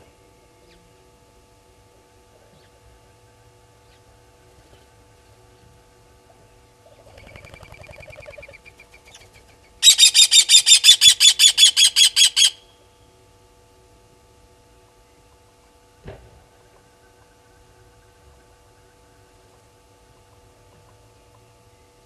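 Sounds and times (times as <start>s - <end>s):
bird alarm call sharp metallic notes: 9.8s - 12.7s.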